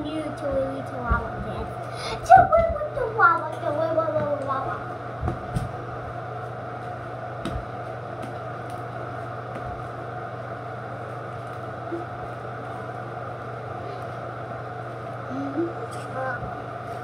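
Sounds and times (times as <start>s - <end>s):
exhaust fan humming: 0.0s - 17.0s
soft low thumps: 5.1s - 5.8s.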